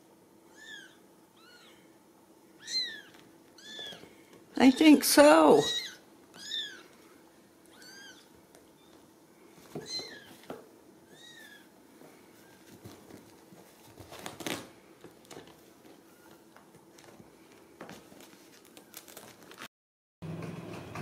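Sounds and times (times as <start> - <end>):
kitten mewing: 7.7 - 8.9.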